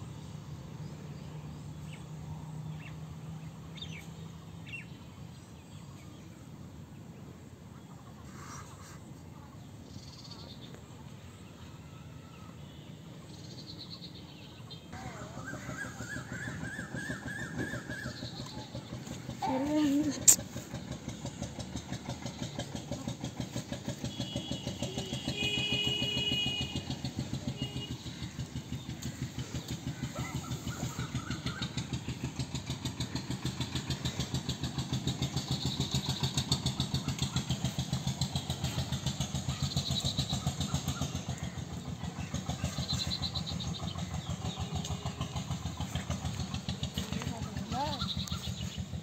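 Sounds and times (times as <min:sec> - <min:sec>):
small engine running: 0:00.0 - 0:49.0.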